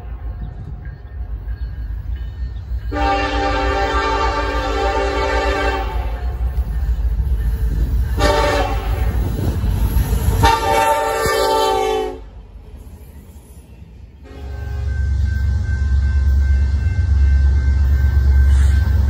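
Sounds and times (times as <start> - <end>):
locomotive air horn: 2.9 - 6.5, 8.2 - 9.2, 10.4 - 12.3, 14.2 - 14.9.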